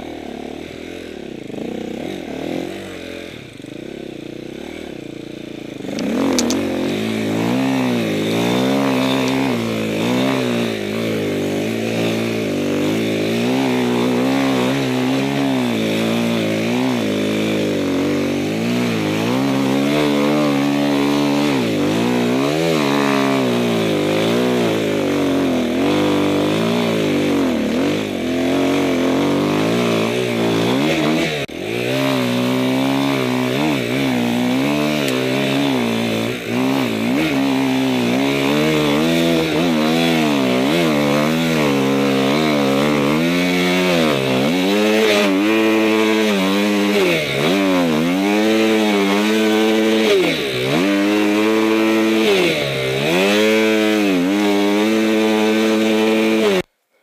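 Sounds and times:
motorcycle engine revving: 0.0s - 56.7s.

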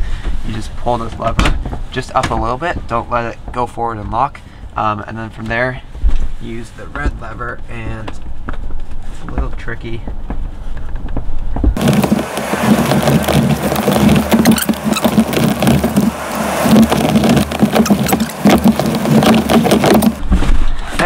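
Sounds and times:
seat rattling and clunking: 10.0s - 20.5s.

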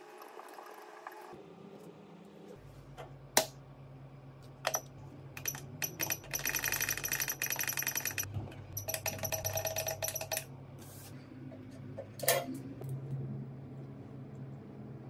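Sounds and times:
low steady hum: 1.4s - 15.0s
rapid mechanical clicking: 5.4s - 10.5s.

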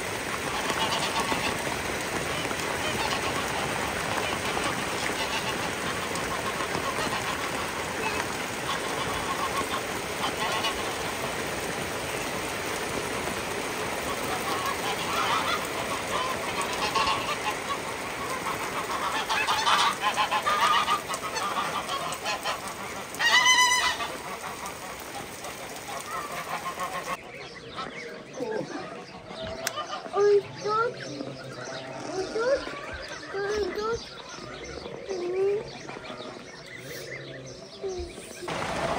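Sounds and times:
geese honking: 0.0s - 38.9s.

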